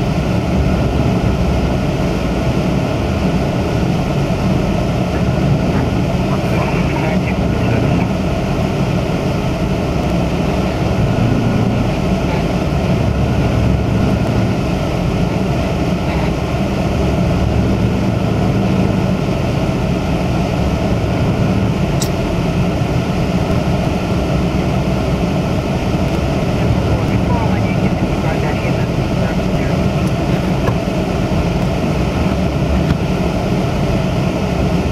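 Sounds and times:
car engine and road noise: 0.0s - 34.9s.

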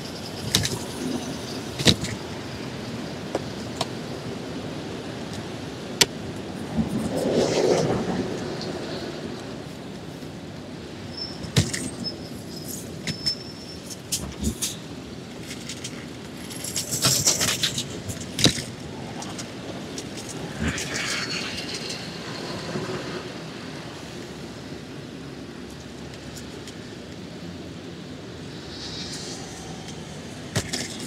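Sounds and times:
city traffic: 0.0s - 31.0s
wind rushing: 5.5s - 9.9s, 16.4s - 24.6s, 27.8s - 31.0s
hiss: 28.5s - 31.0s.

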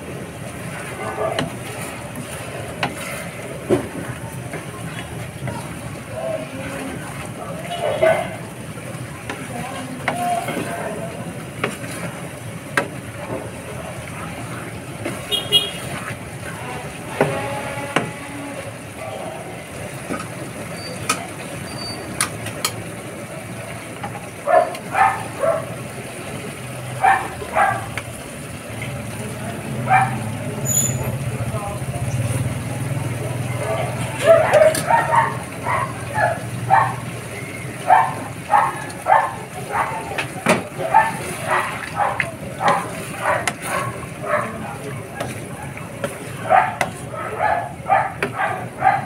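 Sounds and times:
spatula stirring noodles in a pan: 0.0s - 7.6s, 8.2s - 19.0s, 33.9s - 48.8s
dog barking: 1.0s - 1.5s, 7.8s - 8.3s, 24.4s - 25.7s, 27.0s - 28.0s, 29.9s - 30.2s, 34.1s - 37.0s, 37.8s - 40.2s, 40.8s - 44.6s, 45.2s - 49.0s.

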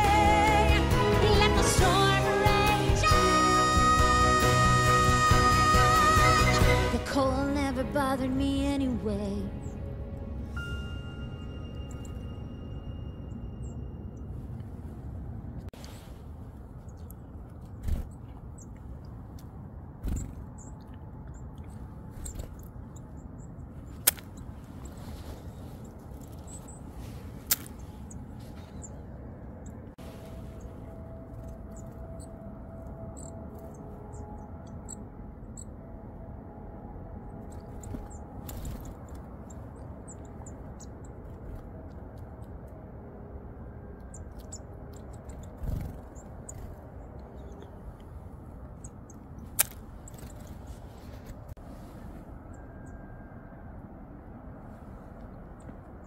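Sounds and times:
low background rumble: 0.0s - 56.0s
small birds chirping: 10.6s - 14.3s, 16.8s - 35.8s, 37.3s - 42.9s, 43.9s - 51.6s
bird wings fluttering: 37.5s - 39.3s, 45.0s - 46.8s.

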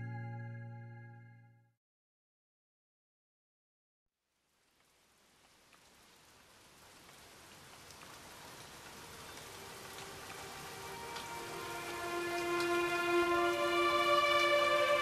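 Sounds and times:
rain-like hiss with crackles: 4.2s - 15.0s.

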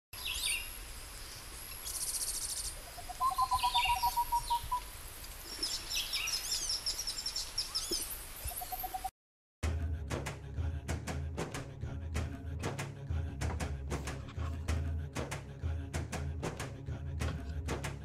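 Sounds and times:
birds chirping and trilling: 0.2s - 9.1s.

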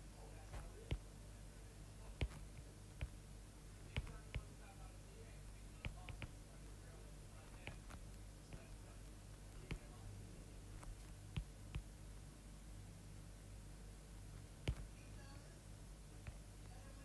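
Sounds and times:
low steady hum: 0.0s - 17.0s
stylus tapping on glass screen: 3.9s - 4.5s, 5.8s - 6.4s, 7.5s - 8.7s, 14.6s - 14.9s.

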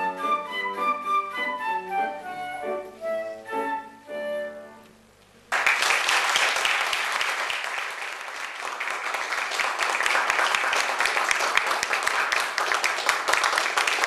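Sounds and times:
flute melody: 0.0s - 5.1s
audience applauding: 5.5s - 14.0s.

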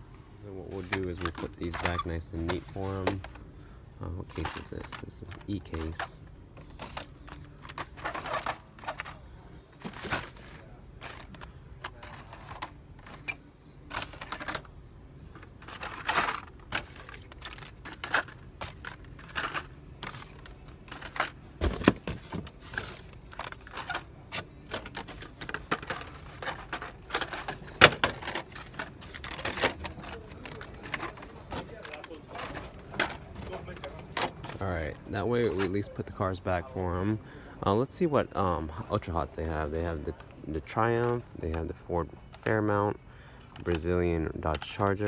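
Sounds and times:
plastic and cardboard packaging clicking: 0.8s - 3.4s, 15.4s - 34.6s.

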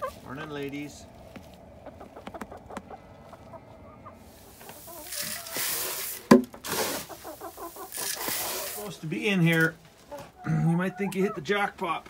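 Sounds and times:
hens clucking softly: 0.0s - 11.7s
loud rustling and scuffling: 4.2s - 10.4s.

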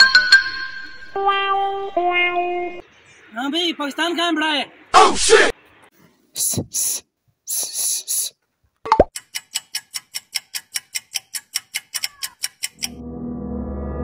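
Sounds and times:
fast clock ticking: 9.1s - 13.0s.

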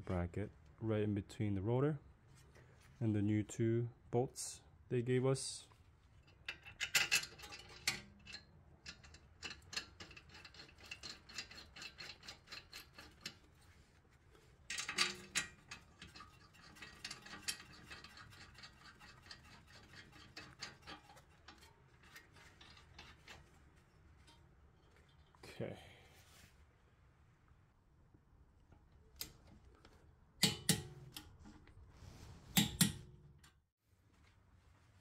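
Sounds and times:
metallic clatter: 6.2s - 13.8s, 14.6s - 25.4s.

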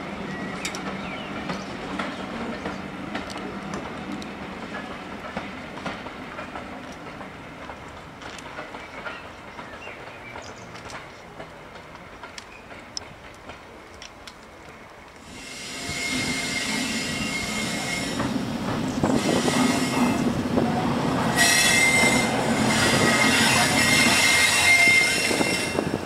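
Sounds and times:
diesel locomotive engine passing: 0.0s - 14.4s, 15.1s - 26.0s
high-pitched wheel squeal: 15.4s - 18.3s, 19.0s - 20.3s, 21.3s - 26.0s.

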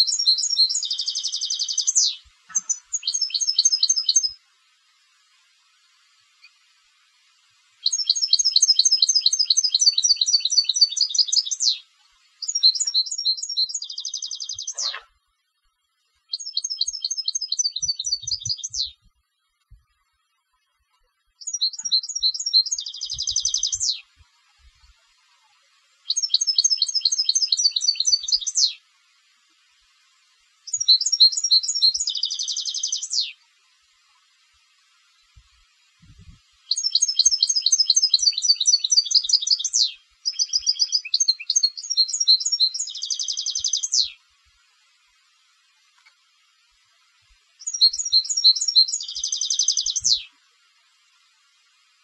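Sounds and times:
goldfinch singing: 0.0s - 4.4s, 7.8s - 15.1s, 16.3s - 19.0s, 21.4s - 24.2s, 26.0s - 28.8s, 30.7s - 33.4s, 36.7s - 44.2s, 47.6s - 50.3s.

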